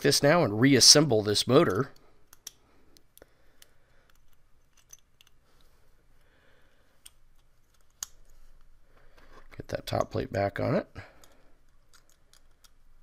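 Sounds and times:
faint clicks of small parts: 0:01.6 - 0:09.3, 0:11.0 - 0:13.0.

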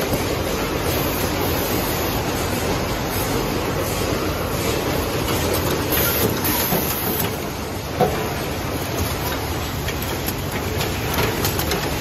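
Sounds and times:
machine hiss and clatter: 0:00.0 - 0:12.0
machine clicks: 0:08.8 - 0:12.0.

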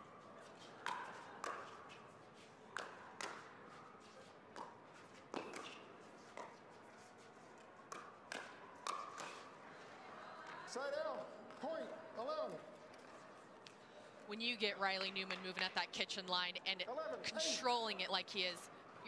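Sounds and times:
ball bouncing on court: 0:00.8 - 0:02.0, 0:02.7 - 0:03.7, 0:04.5 - 0:06.6, 0:07.8 - 0:09.5, 0:14.8 - 0:16.1
paddles hitting plastic ball: 0:00.8 - 0:02.0, 0:02.7 - 0:03.6, 0:04.5 - 0:06.6, 0:07.6 - 0:09.6.

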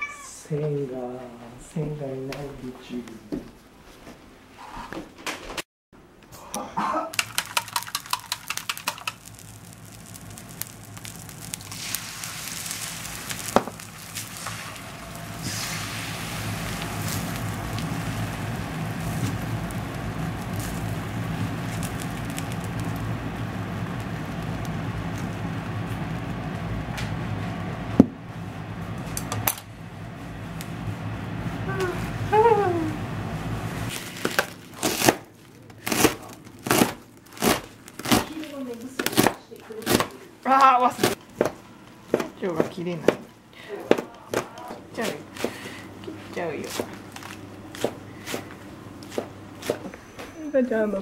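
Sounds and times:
egg sizzling in a wok: 0:07.1 - 0:28.0
low hum: 0:09.0 - 0:35.8.

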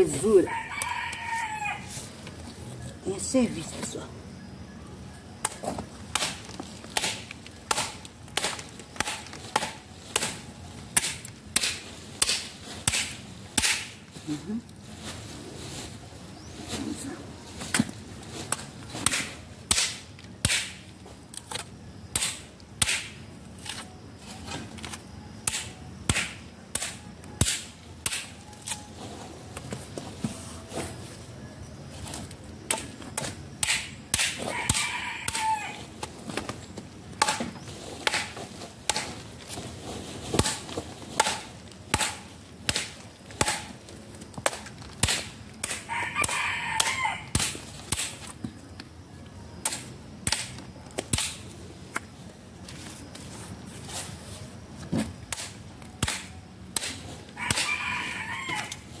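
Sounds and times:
rooster crowing: 0:00.3 - 0:02.0, 0:34.5 - 0:35.8, 0:45.9 - 0:47.4, 0:57.4 - 0:58.9.

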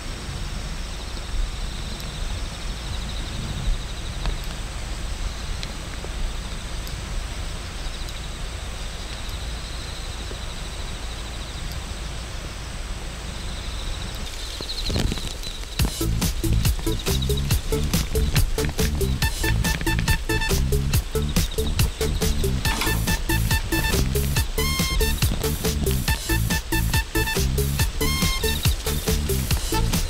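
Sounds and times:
low rumble and hiss: 0:00.0 - 0:30.0
faint high chirping: 0:13.4 - 0:30.0.

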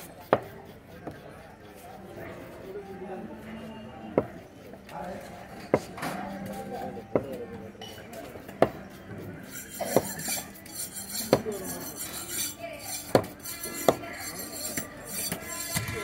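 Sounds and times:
knife chopping fish on wood: 0:00.0 - 0:01.4, 0:08.5 - 0:08.9, 0:09.8 - 0:10.5, 0:11.2 - 0:11.6, 0:13.0 - 0:14.0.

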